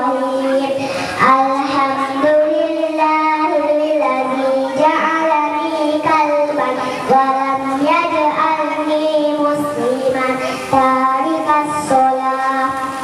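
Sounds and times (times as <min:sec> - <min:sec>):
girls singing into microphones: 0:00.0 - 0:13.0.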